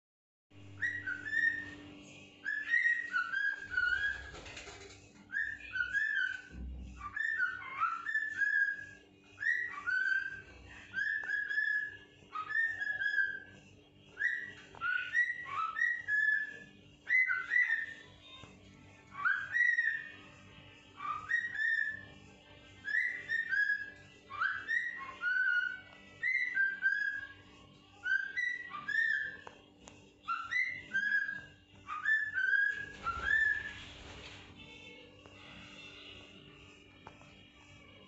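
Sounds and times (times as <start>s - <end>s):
cockatiel whistling: 0.7s - 13.5s, 14.2s - 18.5s, 19.1s - 20.3s, 21.0s - 22.1s, 22.8s - 27.4s, 28.0s - 29.6s, 30.2s - 34.4s.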